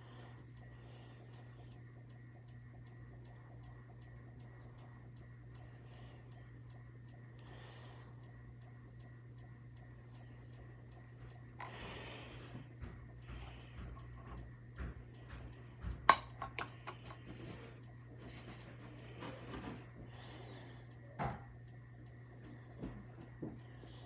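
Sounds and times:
soft nasal breathing: 0:00.0 - 0:02.2, 0:02.8 - 0:08.7, 0:09.4 - 0:16.0, 0:16.7 - 0:24.0
low hum: 0:00.0 - 0:24.0
makeup items clicking: 0:16.1 - 0:17.2.

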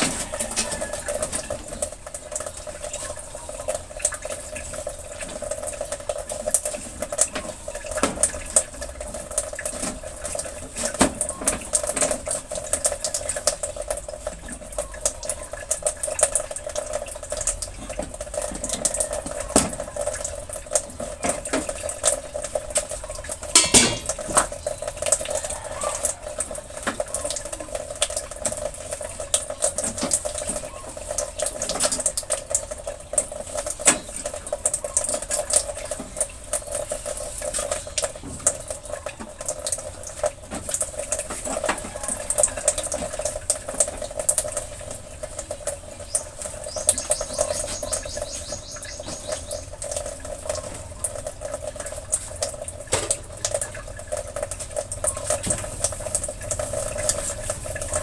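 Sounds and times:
small knocks: 0:23.5 - 0:24.6
cloth scrubbing metal range top: 0:23.6 - 0:24.2.

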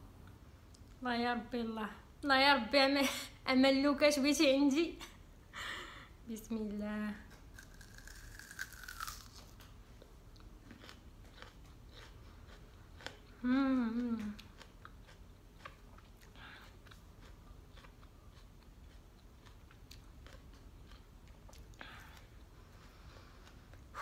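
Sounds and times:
raw onion chewing crunches: 0:07.3 - 0:09.8, 0:10.4 - 0:13.3, 0:13.9 - 0:22.3.

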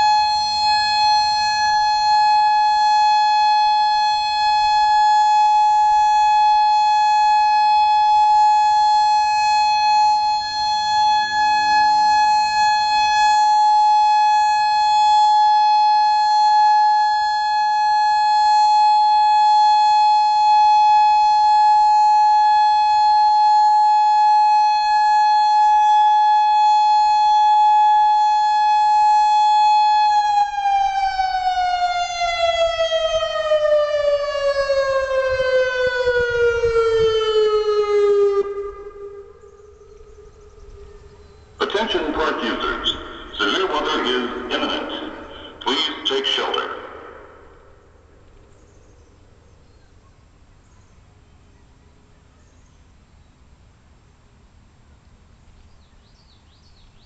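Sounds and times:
electronic warning siren: 0:00.0 - 0:48.2.

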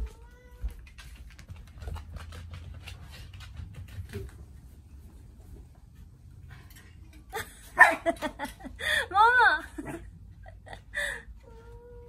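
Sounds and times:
scratchy rustling and ticks: 0:00.0 - 0:07.5.

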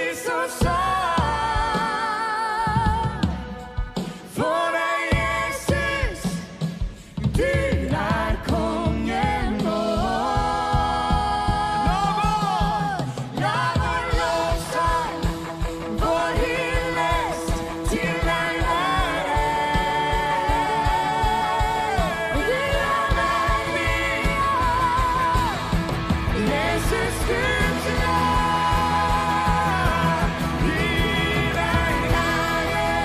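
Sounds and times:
woman singing with vibrato: 0:00.0 - 0:06.7, 0:07.3 - 0:33.0
steady drum beat: 0:00.2 - 0:33.0
acoustic guitars: 0:06.8 - 0:33.0.

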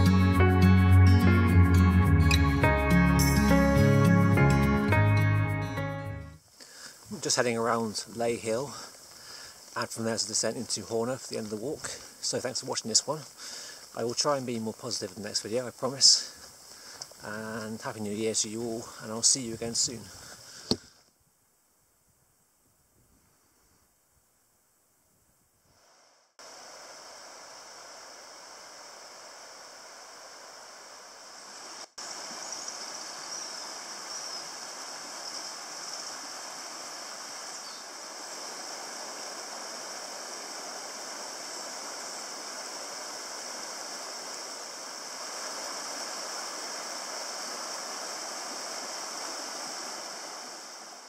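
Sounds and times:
stream rushing over stones: 0:06.6 - 0:20.8, 0:26.4 - 0:51.0.

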